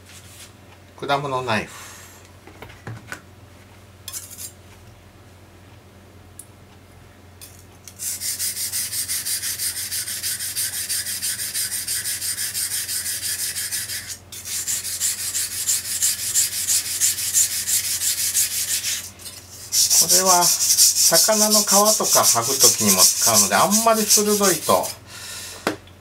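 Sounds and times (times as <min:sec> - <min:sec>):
knife scraping on whetstone: 0:04.1 - 0:04.5, 0:07.9 - 0:25.0.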